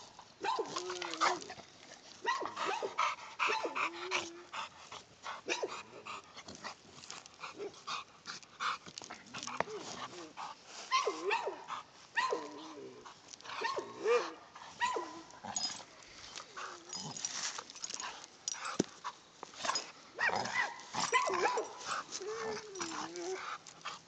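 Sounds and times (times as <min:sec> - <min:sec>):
dog whining yelps: 0:10.9 - 0:11.6, 0:12.2 - 0:12.7, 0:20.2 - 0:21.7.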